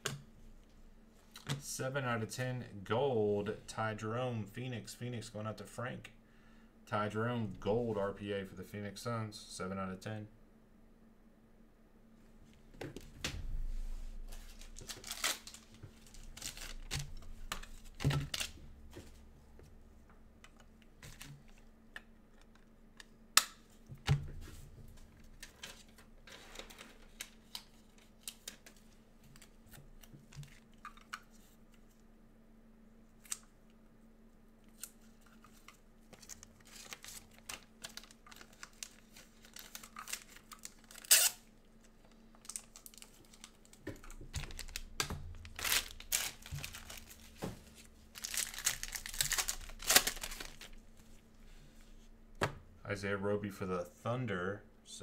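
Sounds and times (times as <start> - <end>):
rustling of cards and plastic: 13.9 - 19.6, 20.4 - 23.8, 24.4 - 32.0, 34.6 - 52.0.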